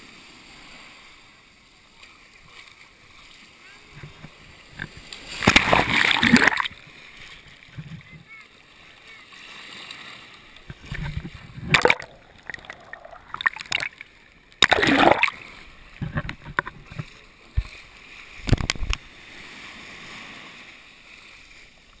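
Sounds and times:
sea water splashing: 0:00.0 - 0:22.0.

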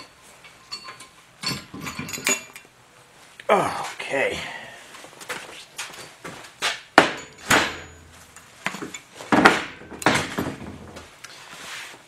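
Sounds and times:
metal tools clanking on workbench: 0:00.0 - 0:02.7.

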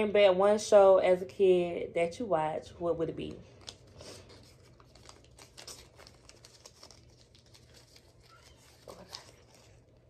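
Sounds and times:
paper crinkling and rustling: 0:03.5 - 0:10.0.

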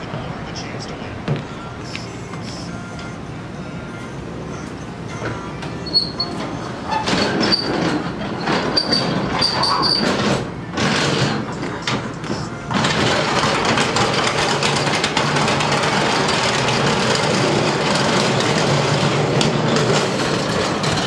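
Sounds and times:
hand truck rattling on metal ramp: 0:05.8 - 0:12.1, 0:12.7 - 0:21.0.

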